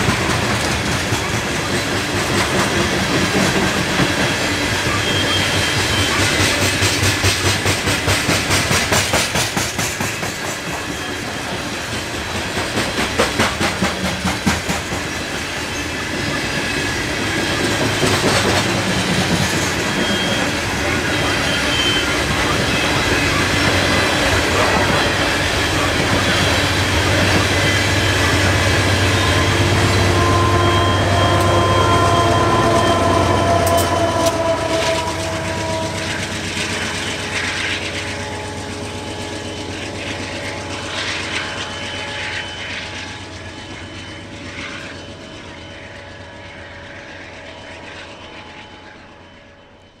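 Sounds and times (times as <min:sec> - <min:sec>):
train wheels clattering on rails: 0:00.0 - 0:49.0
thin wheel squeal: 0:04.1 - 0:07.2, 0:15.4 - 0:46.2.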